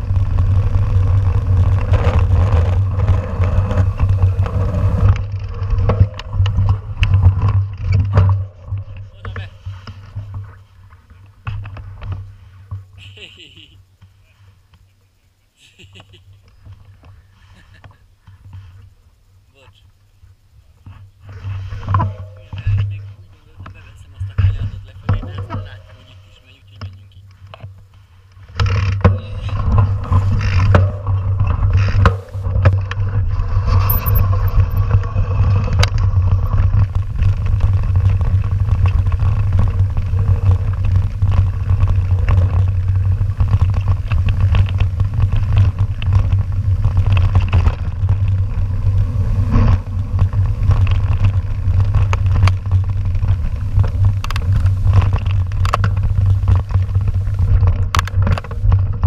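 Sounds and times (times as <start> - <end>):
mountain bike rolling over dirt: 0.0 - 14.9, 20.2 - 59.0.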